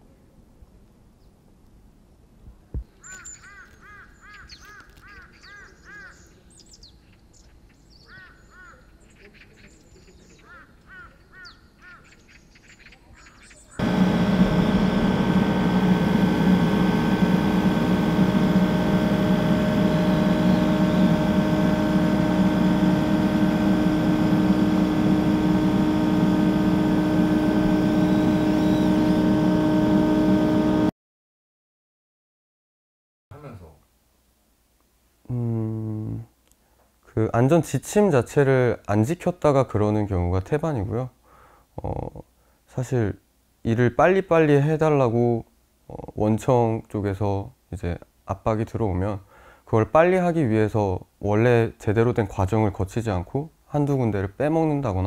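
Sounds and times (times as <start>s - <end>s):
birds chirping: 2.9s - 30.5s
steady drone of held tones: 13.8s - 30.9s.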